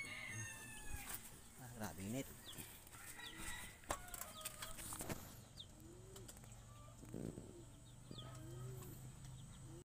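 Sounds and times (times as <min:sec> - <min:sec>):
pigeons cooing: 0:04.6 - 0:09.8.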